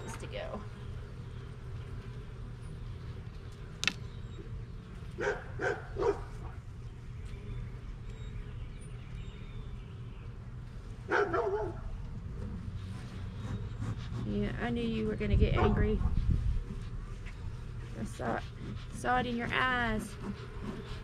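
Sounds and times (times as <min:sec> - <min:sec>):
steady low hum: 0:00.0 - 0:21.0
dog barking: 0:05.2 - 0:06.3, 0:11.1 - 0:11.9.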